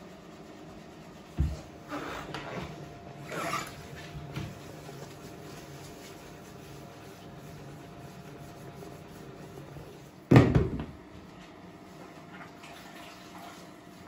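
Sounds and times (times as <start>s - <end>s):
low steady hum: 0.0s - 14.0s
cloth rubbing on tiles: 0.4s - 10.2s.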